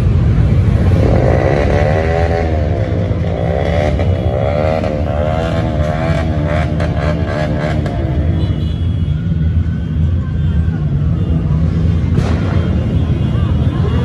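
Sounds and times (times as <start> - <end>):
motorcycle engines rumbling: 0.0 - 14.0
motorcycle engine revving: 0.6 - 8.4.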